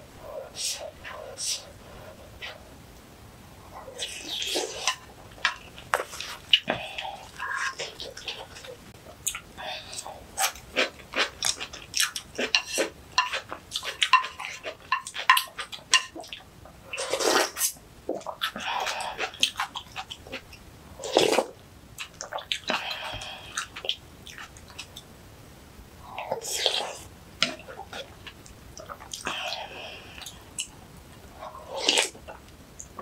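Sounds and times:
crunchy food being chewed: 0:03.9 - 0:25.1.

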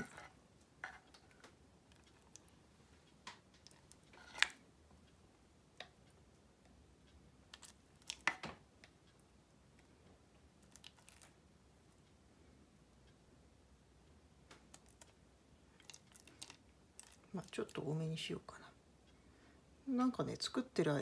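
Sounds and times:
spatula scraping a container: 0:00.0 - 0:01.2, 0:04.1 - 0:04.6.

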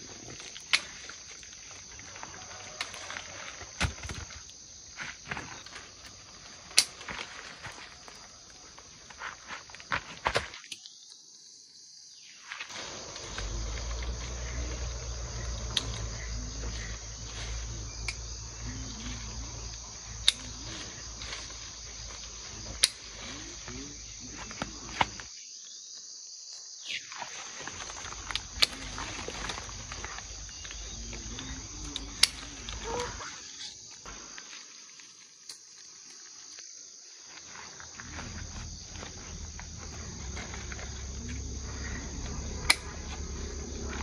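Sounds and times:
insects chirping: 0:00.0 - 0:44.0
pruning shears snipping: 0:20.2 - 0:21.5, 0:22.7 - 0:23.3, 0:28.1 - 0:33.2.

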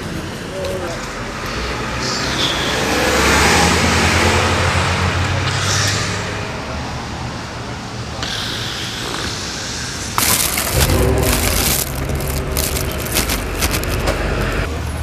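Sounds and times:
city noise: 0:00.0 - 0:15.0
vehicle engine running low: 0:10.2 - 0:15.0.

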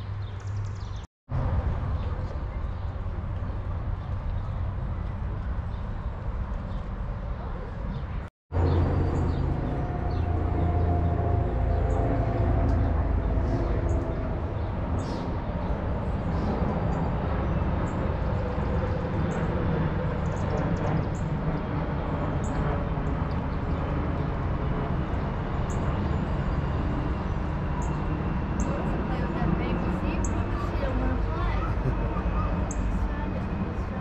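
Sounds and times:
low rumble: 0:01.3 - 0:19.7.

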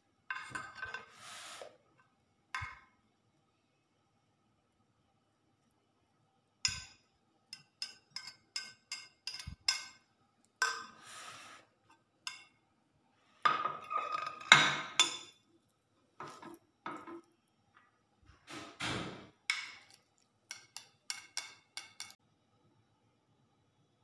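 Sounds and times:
metal scraper clinking on glass dish: 0:06.7 - 0:10.0, 0:19.5 - 0:22.2.

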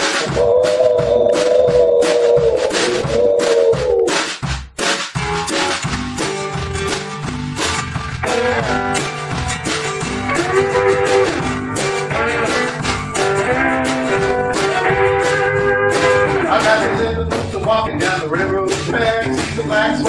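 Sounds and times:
strummed acoustic guitar: 0:00.0 - 0:01.6, 0:04.3 - 0:20.0
drum kit beat: 0:00.0 - 0:20.0
electric guitars: 0:05.2 - 0:20.0.

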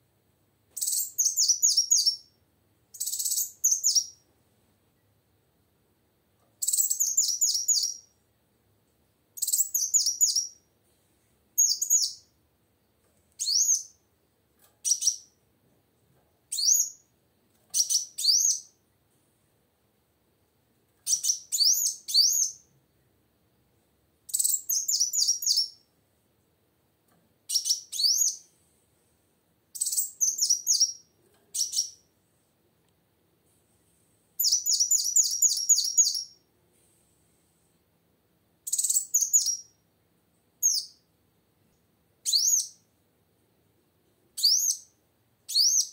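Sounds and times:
bird twittering: 0:34.4 - 0:36.4.

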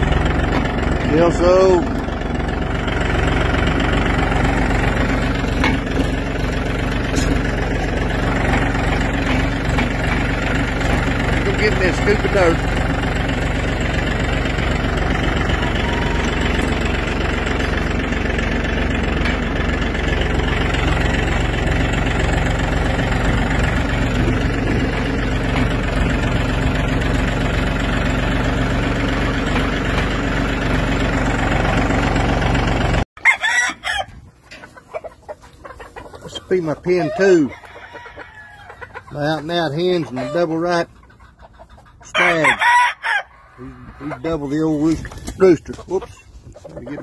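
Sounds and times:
tractor engine running: 0:00.0 - 0:42.9, 0:43.6 - 0:47.0
chickens clucking: 0:00.0 - 0:47.0
rooster crowing: 0:13.3 - 0:17.7, 0:33.2 - 0:34.2, 0:37.1 - 0:38.9, 0:42.2 - 0:43.9.

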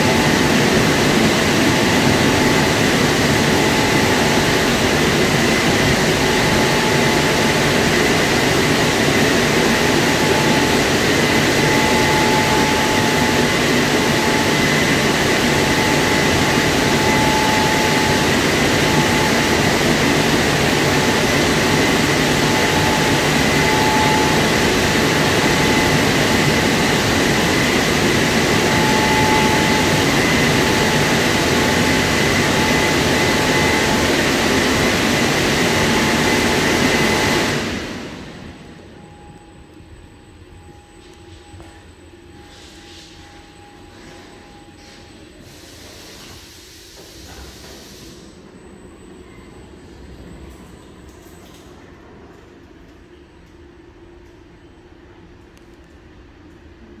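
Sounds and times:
car wash drying blowers: 0:00.0 - 0:38.6.

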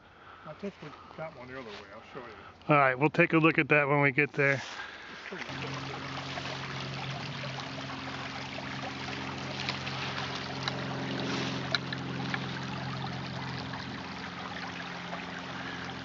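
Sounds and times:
steady low hum: 0:04.7 - 0:16.0
footsteps rustling through dry leaves: 0:09.3 - 0:12.4.

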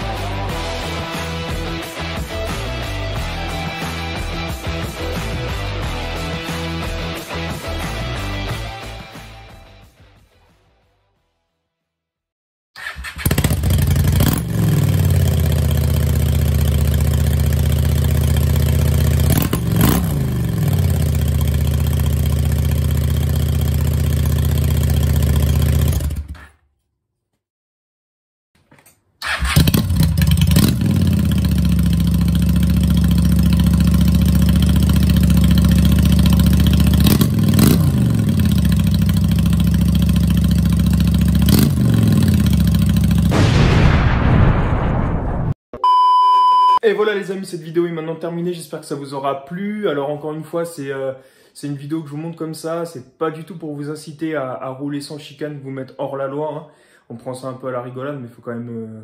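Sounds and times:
motorcycle engine idling: 0:13.2 - 0:26.3, 0:29.8 - 0:43.3.

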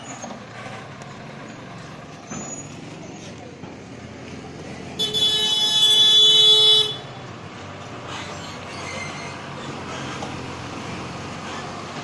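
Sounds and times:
engine and road noise: 0:00.0 - 0:12.0
vehicle horn blast: 0:05.0 - 0:07.1.

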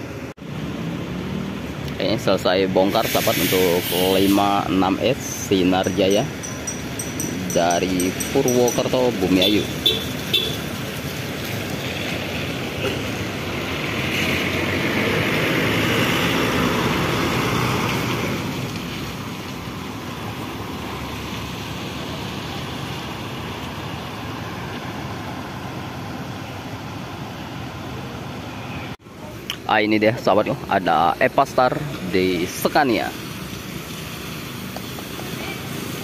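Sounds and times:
steady background noise: 0:00.0 - 0:16.5
bus passing close by: 0:09.7 - 0:29.0.

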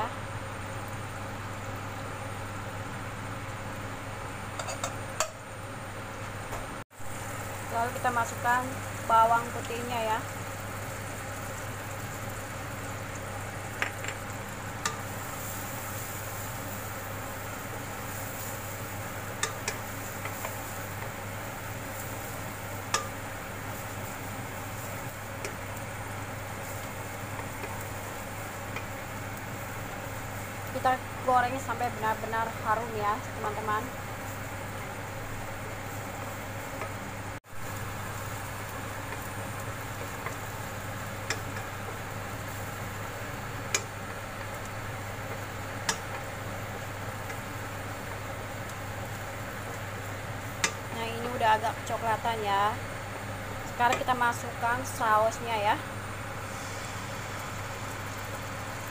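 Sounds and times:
garlic sizzling in butter: 0:07.0 - 0:58.9
spatula clicking against pan: 0:50.6 - 0:50.8.

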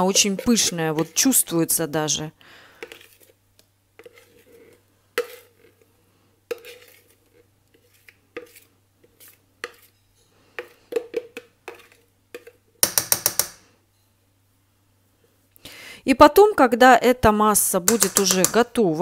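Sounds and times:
metal spoon scraping ceramic bowl: 0:00.0 - 0:01.3, 0:04.0 - 0:05.8, 0:06.5 - 0:10.8, 0:11.6 - 0:13.0.

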